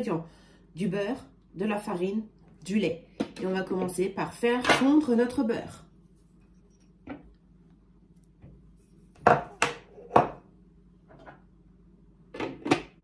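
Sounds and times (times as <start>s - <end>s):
kitchenware clacking: 9.2s - 10.4s.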